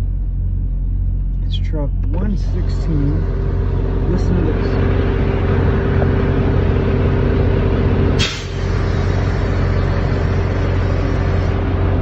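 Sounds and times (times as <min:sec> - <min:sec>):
diesel truck engine idling: 0:00.0 - 0:12.0
air purge valve blast: 0:08.2 - 0:11.5.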